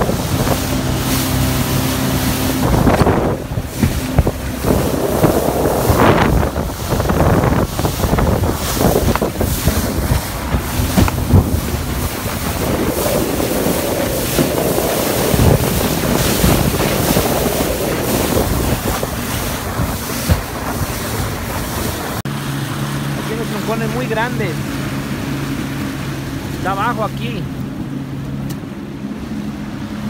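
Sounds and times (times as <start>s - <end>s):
wind buffeting microphone: 0.0s - 26.6s
low engine hum: 0.0s - 30.0s
water rushing against a hull: 0.0s - 30.0s.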